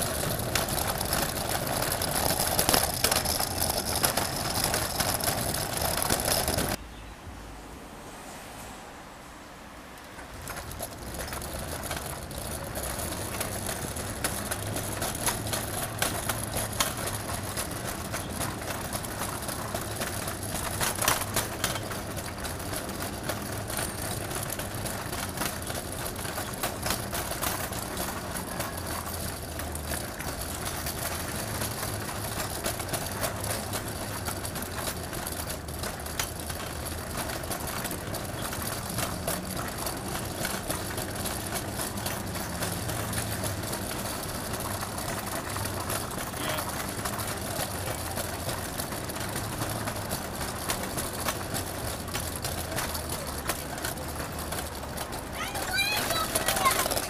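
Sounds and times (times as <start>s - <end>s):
sharp clicks and knocks: 0.0s - 6.8s, 10.2s - 57.0s
vehicle engines humming: 0.0s - 57.0s.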